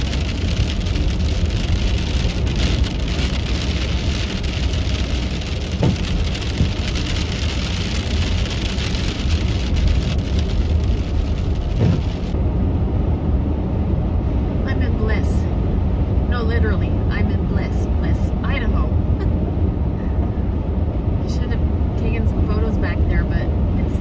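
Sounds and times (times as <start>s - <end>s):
tyre and road noise: 0.0s - 13.6s
sleet hitting windshield and roof: 5.6s - 6.9s, 11.7s - 12.3s.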